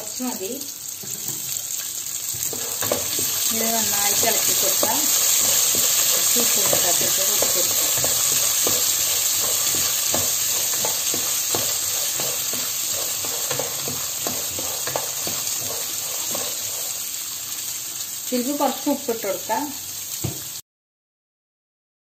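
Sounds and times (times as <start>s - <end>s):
peas sizzling in a pan: 0.0s - 20.6s
wooden spatula scraping and clattering: 2.3s - 17.2s.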